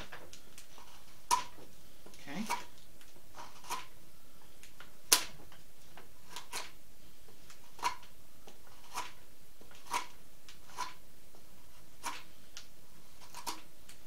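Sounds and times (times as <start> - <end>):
knife cutting wood chips cracking: 12.0 - 14.0.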